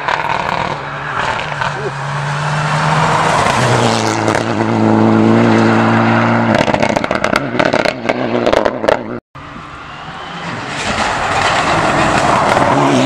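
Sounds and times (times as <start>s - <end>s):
rally car engine passing: 0.0s - 13.0s
exhaust pops and crackles: 6.5s - 9.1s.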